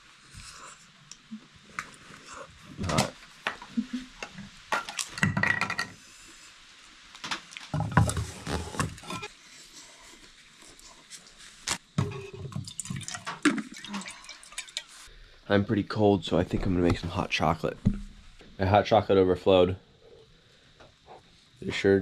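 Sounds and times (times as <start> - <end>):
eating and handling cookware: 1.7 - 6.0, 7.5 - 15.1.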